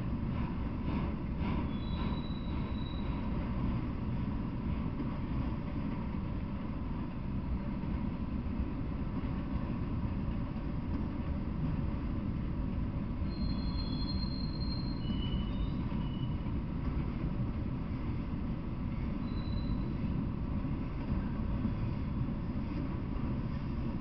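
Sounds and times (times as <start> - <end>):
train wheels rumbling on rail: 0.0 - 24.0
high wheel squeal: 1.6 - 3.4, 13.3 - 16.5, 19.2 - 20.2.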